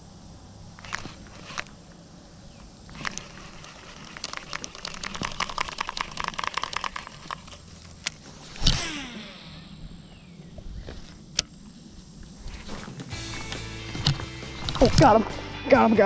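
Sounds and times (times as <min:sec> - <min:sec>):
spool whine: 0:00.0 - 0:15.6
fishing reel clicking: 0:02.9 - 0:09.1.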